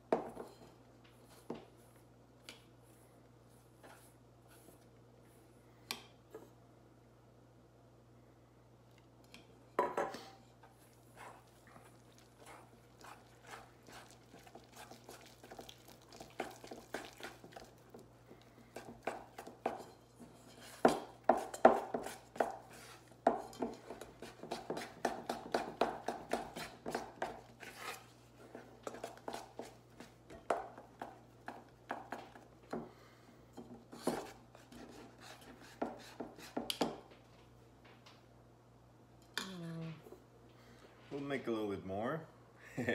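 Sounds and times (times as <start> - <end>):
whisk scraping metal bowl: 11.1 - 15.7, 18.7 - 30.1, 33.9 - 36.7.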